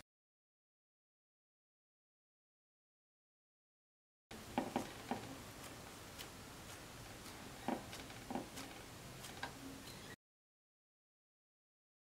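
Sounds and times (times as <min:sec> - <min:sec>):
fingers tapping dough on tray: 0:04.4 - 0:09.6.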